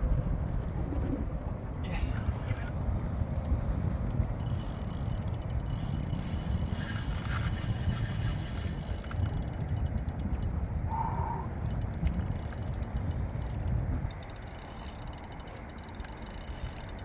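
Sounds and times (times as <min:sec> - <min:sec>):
low rumble: 0:00.0 - 0:06.8
fishing reel clicking rapidly: 0:04.4 - 0:10.5, 0:11.7 - 0:17.0.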